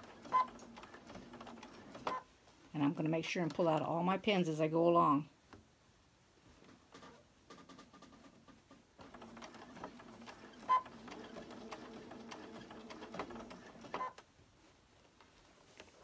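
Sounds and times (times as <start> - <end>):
sewing machine stitching: 0.0 - 2.2, 6.9 - 14.2.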